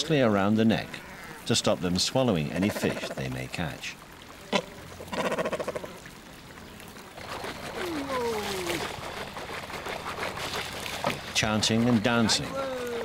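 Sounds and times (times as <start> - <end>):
water trickling: 0.0 - 13.0
cormorant croaking: 2.6 - 3.3, 4.5 - 6.0.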